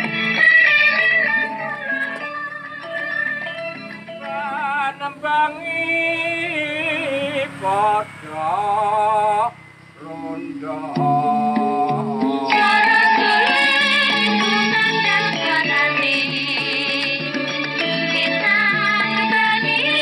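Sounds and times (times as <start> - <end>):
man singing ornamented notes: 4.0 - 14.9.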